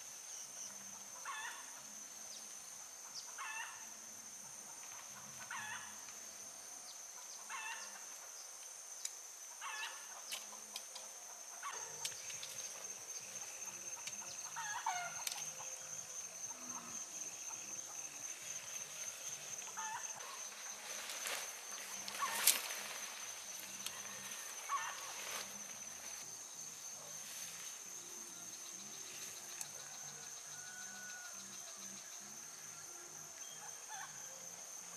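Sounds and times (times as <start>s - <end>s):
high-pitched insect drone: 9.1s - 34.9s
tent fabric rustling: 18.5s - 26.4s.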